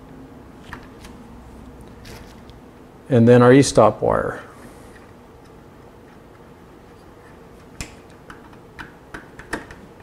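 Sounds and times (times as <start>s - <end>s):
faint steady hum: 0.0s - 10.0s
screwdriver clicks and taps: 7.8s - 9.8s.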